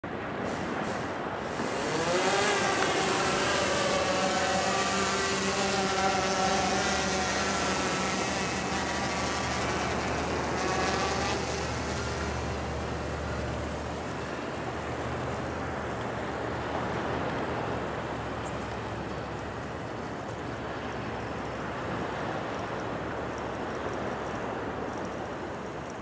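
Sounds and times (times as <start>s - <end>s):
surf washing: 0.1s - 25.7s
drone propellers whining: 0.4s - 25.9s.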